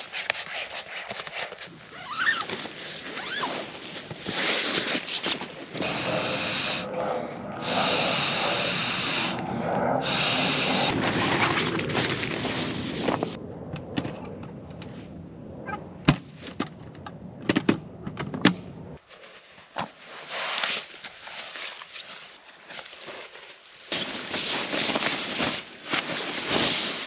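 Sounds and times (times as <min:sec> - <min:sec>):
rustling of camping gear: 0:00.0 - 0:06.8, 0:10.0 - 0:13.4, 0:19.0 - 0:27.0.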